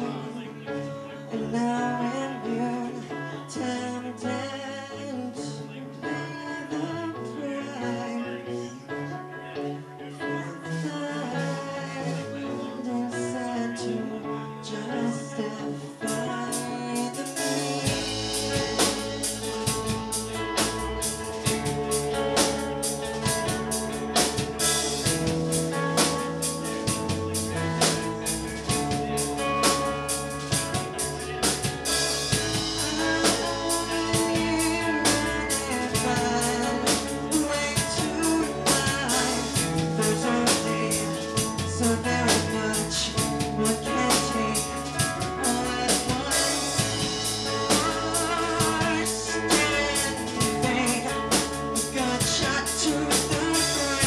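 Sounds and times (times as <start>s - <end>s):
bass guitar: 0.0s - 54.0s
electric guitars: 0.0s - 54.0s
woman singing: 1.3s - 8.8s, 10.2s - 18.8s, 32.6s - 54.0s
drum kit beat: 16.1s - 54.0s.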